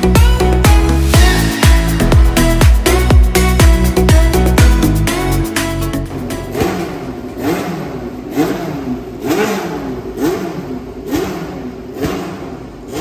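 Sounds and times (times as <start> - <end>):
racing car engine revving: 6.0 - 13.0.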